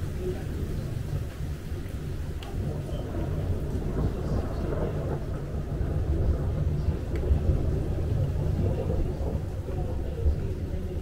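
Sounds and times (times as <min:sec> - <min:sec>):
distant thunder rumbling: 0:00.0 - 0:11.0.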